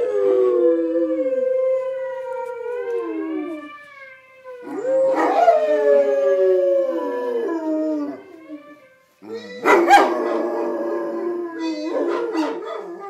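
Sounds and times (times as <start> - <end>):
recorded howls from speakers: 0.0 - 13.0
dog howling: 4.6 - 13.0.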